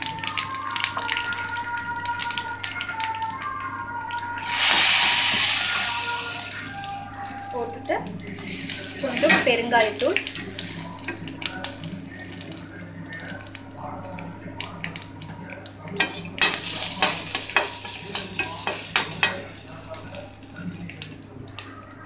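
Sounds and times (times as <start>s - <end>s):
spices sizzling in hot oil: 4.3s - 15.4s, 16.0s - 21.7s.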